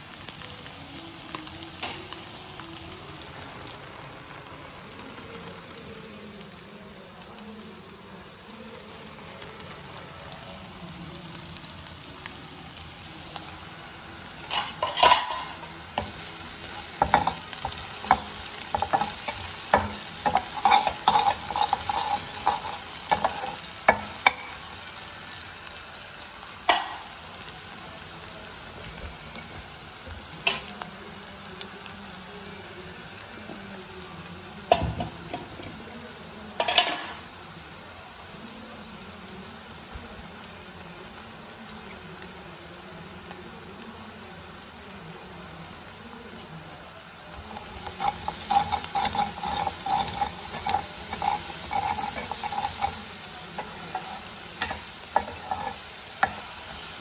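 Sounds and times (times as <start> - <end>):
onions sizzling in a pan: 0.0 - 57.0
metal spoon scraping a pan: 14.4 - 24.7, 47.5 - 57.0.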